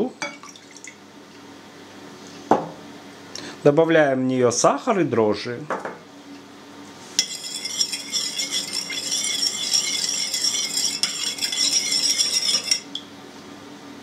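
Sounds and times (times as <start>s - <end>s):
metal spoon stirring in bowl: 7.1s - 13.0s
spoon clinking against bowl: 7.2s - 13.0s.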